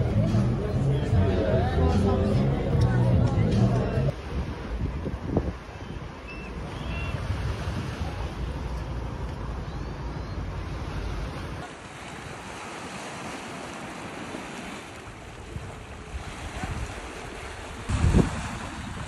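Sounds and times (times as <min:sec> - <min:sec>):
wind buffeting microphone: 0:04.1 - 0:08.7, 0:15.2 - 0:19.0
waves washing on shore: 0:04.1 - 0:19.0.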